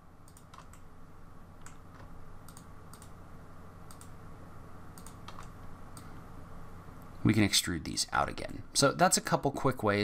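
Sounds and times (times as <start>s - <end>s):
faint low hum: 0.0s - 10.0s
mouse and keyboard clicks: 0.3s - 0.8s, 5.0s - 6.1s.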